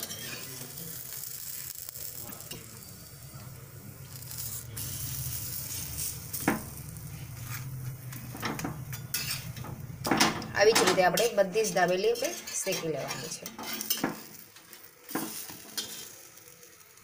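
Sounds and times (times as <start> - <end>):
oil sizzling on griddle: 0.0 - 17.0
low steady hum: 2.2 - 13.6.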